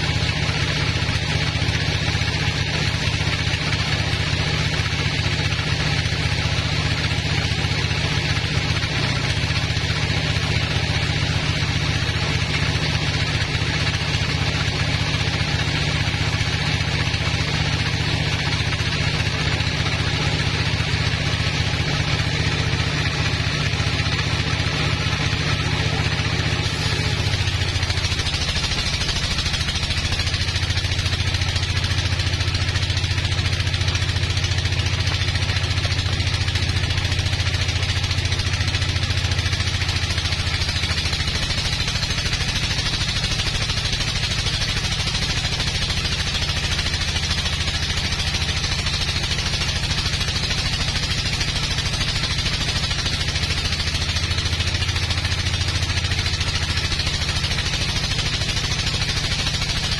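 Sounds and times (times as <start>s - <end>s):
sawmill engine drone: 0.0s - 59.9s
saw blade hissing through log: 26.5s - 29.0s.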